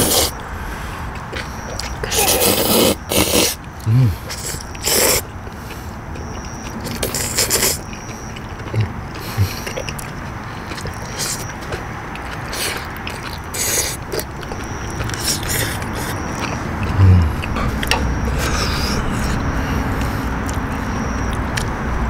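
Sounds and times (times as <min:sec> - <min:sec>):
people slurping noodles: 0:00.0 - 0:00.4, 0:01.8 - 0:05.9, 0:06.8 - 0:07.9, 0:12.3 - 0:20.6.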